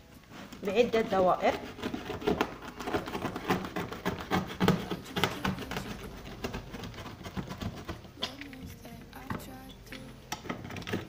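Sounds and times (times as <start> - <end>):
scratching on cardboard: 0.4 - 8.2.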